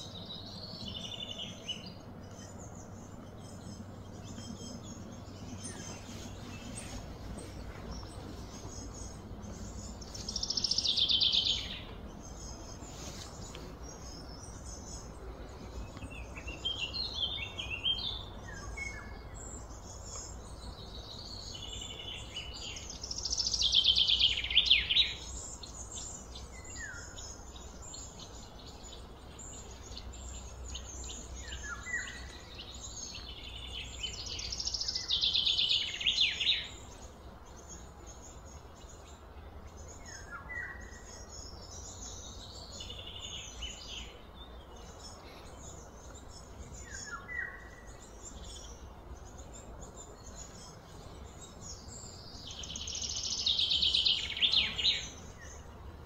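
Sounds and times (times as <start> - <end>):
steady low rumble: 0.0 - 23.6
birds chirping and calling: 0.0 - 56.0.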